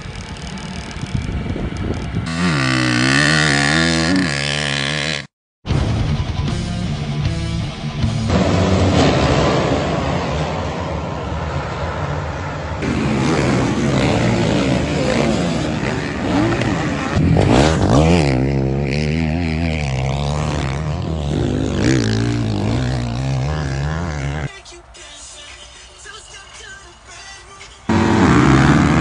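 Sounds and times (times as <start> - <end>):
motocross bike revving: 0.0 - 5.3, 12.8 - 24.5, 27.9 - 29.0
dirt bikes revving together: 2.2 - 5.3, 12.8 - 24.5, 27.9 - 29.0.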